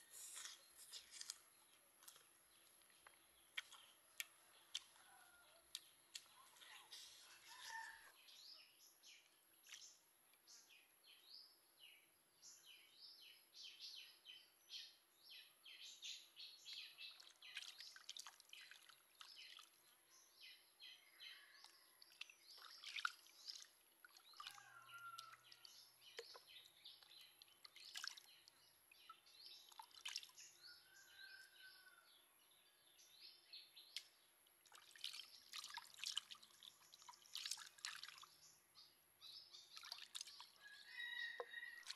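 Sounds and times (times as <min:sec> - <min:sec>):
water splashing and dripping: 0:17.1 - 0:19.9, 0:22.0 - 0:30.5, 0:34.0 - 0:38.4, 0:39.7 - 0:40.7, 0:41.3 - 0:41.9.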